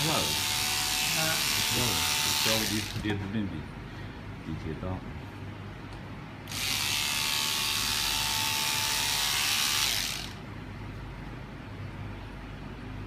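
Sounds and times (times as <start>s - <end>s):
electric scissors cutting fabric: 0.0s - 3.1s, 6.5s - 10.4s.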